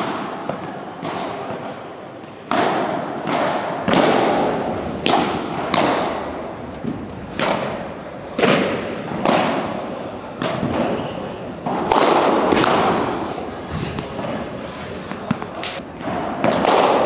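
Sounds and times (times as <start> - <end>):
padel ball pops echoing: 2.5 - 7.8, 8.4 - 9.8, 10.4 - 11.0, 11.6 - 13.2, 15.1 - 17.0.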